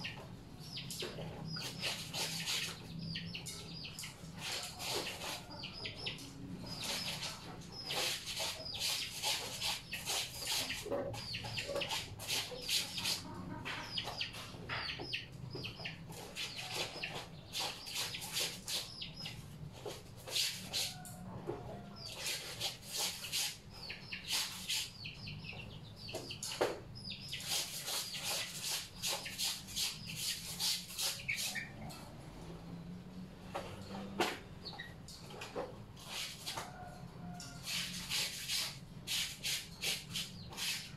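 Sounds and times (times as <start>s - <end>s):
wet clothes scrubbed by hand: 1.6s - 2.8s.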